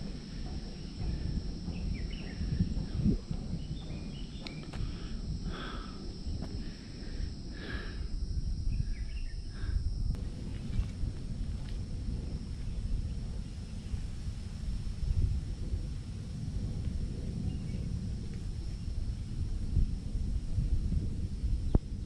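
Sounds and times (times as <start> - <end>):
insects droning: 0.0 - 22.0
wind rumble on microphone: 0.0 - 22.0
bird chirps: 8.7 - 9.5.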